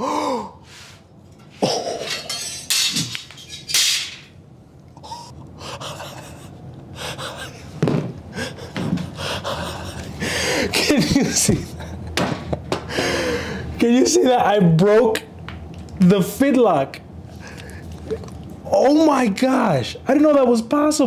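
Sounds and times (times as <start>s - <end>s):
man gasping and breathing heavily: 0.0s - 0.7s, 8.3s - 10.8s, 12.9s - 13.7s.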